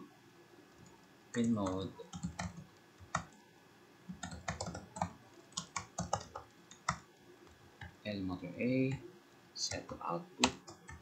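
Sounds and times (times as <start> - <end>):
typing on keyboard: 1.3 - 3.4, 4.1 - 7.0, 9.7 - 11.0.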